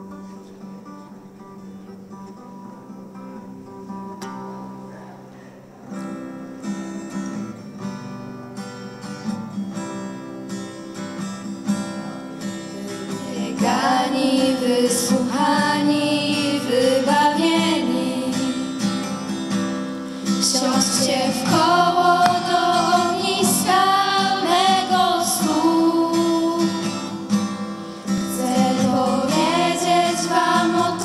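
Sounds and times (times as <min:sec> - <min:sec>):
acoustic guitar playing: 0:00.0 - 0:31.0
girls singing: 0:12.8 - 0:19.2, 0:20.2 - 0:27.4, 0:28.0 - 0:31.0.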